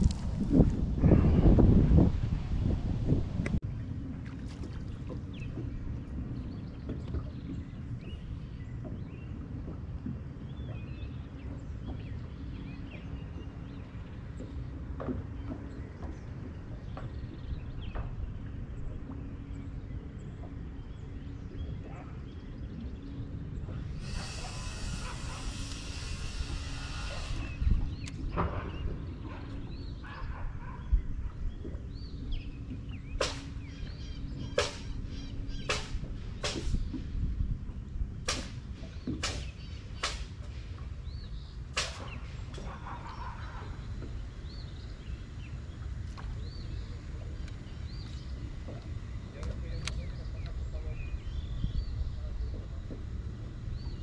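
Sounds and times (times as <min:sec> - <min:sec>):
faint steady hum: 0:00.0 - 0:54.0
water around a boat: 0:00.0 - 0:54.0
wind rumbling: 0:00.0 - 0:54.0
birds chirping: 0:04.8 - 0:54.0
sharp swish: 0:34.6 - 0:34.9, 0:35.7 - 0:36.8
small birds chirping: 0:41.0 - 0:54.0.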